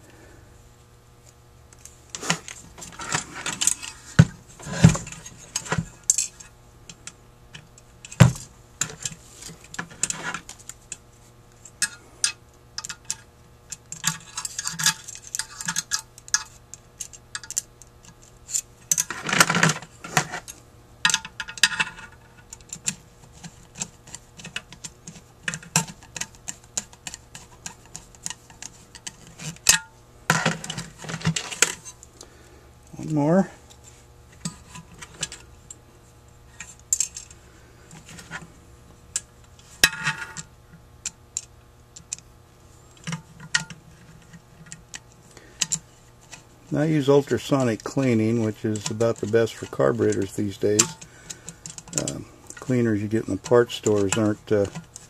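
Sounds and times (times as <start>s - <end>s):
metal parts clicking and scraping: 1.8s - 7.0s, 11.6s - 32.0s, 36.5s - 38.5s, 39.1s - 42.2s, 42.9s - 55.0s.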